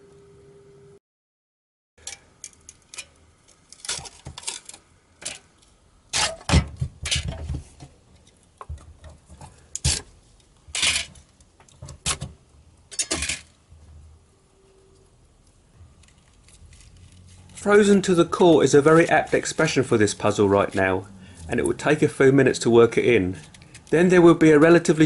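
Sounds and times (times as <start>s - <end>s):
thin metal sheets clinking and scraping: 2.0s - 5.5s, 10.7s - 11.2s, 12.9s - 13.6s.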